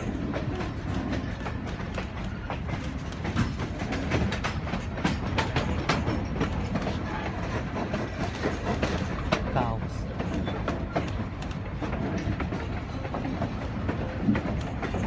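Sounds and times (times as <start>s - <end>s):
train coach rumbling on track: 0.0s - 15.0s
wheels clicking over rails: 0.0s - 15.0s.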